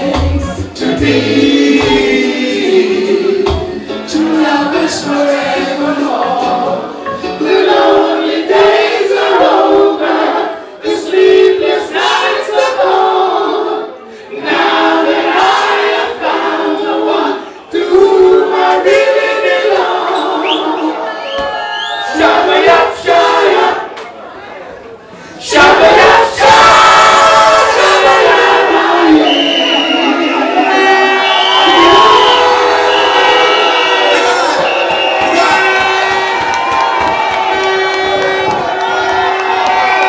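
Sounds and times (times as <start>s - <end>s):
men singing in harmony: 0.0s - 13.6s.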